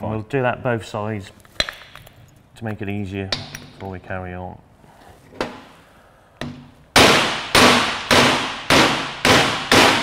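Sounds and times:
hammer striking steel: 6.4 - 10.0.

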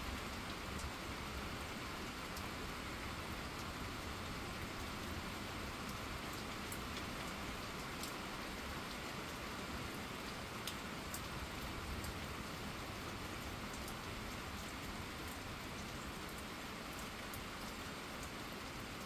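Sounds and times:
rain hissing on pavement: 0.0 - 19.0
sharp raindrop ticks: 5.9 - 8.2, 10.6 - 12.2.

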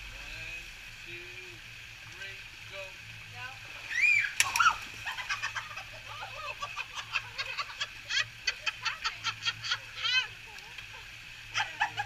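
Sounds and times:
people laughing hard: 5.0 - 10.3.

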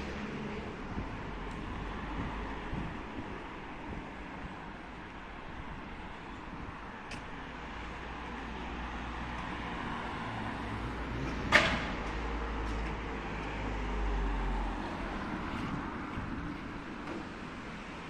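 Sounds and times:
street traffic rumble: 0.0 - 18.0
wind on microphone: 0.1 - 7.4, 15.0 - 17.0.

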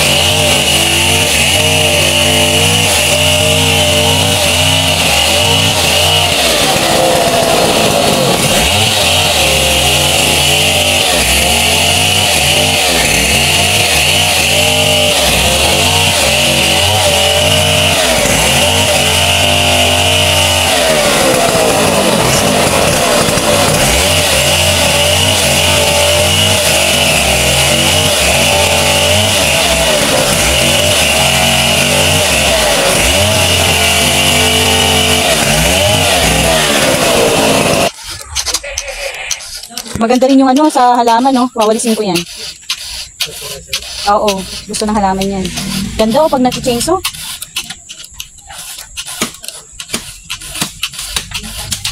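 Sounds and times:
chainsaw cutting wood: 0.0 - 51.9.

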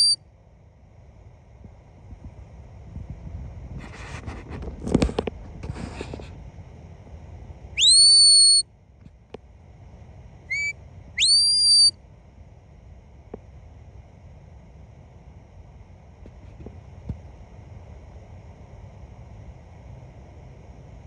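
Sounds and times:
wind or handling rustle: 1.6 - 6.6
rising dog-command whistles: 7.8 - 8.6, 10.5 - 11.9.

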